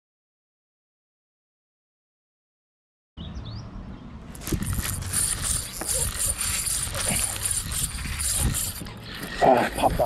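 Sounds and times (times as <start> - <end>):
fishing reel whirring: 4.4 - 10.0.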